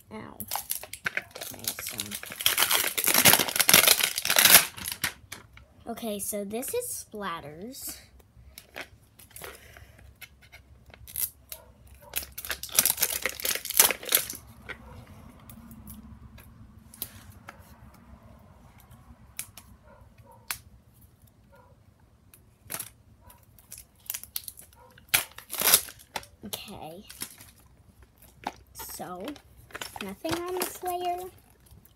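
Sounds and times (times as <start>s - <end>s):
packaging tearing and crinkling: 0.4s - 5.5s, 10.9s - 14.7s, 22.6s - 26.4s, 27.0s - 31.9s
wrapping clicks and rustles: 0.4s - 5.7s, 7.8s - 16.0s, 22.5s - 31.9s.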